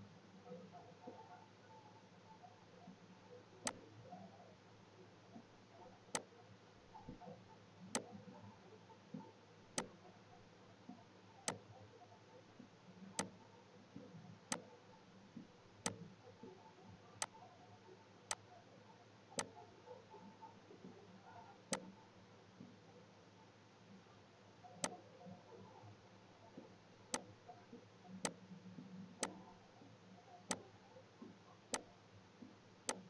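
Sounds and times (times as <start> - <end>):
faint low hum: 0.0 - 33.0
computer mouse clicking: 13.2 - 13.4, 14.5 - 14.7, 21.7 - 21.9, 29.2 - 29.5.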